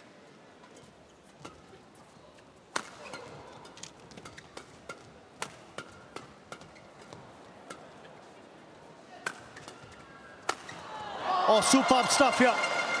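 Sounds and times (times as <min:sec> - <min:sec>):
rackets hitting shuttlecock: 0:02.7 - 0:08.1, 0:09.2 - 0:10.9.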